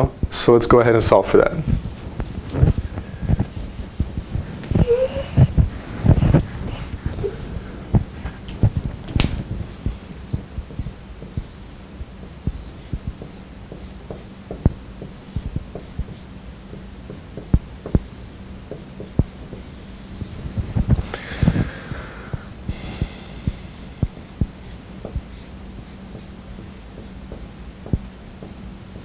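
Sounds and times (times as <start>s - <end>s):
faint steady hum: 0.0s - 29.0s
marker squeaking on whiteboard: 4.7s - 5.5s, 10.2s - 11.7s, 12.3s - 20.5s, 24.4s - 28.7s
marker tip tapping whiteboard: 12.5s - 19.6s, 27.0s - 28.6s.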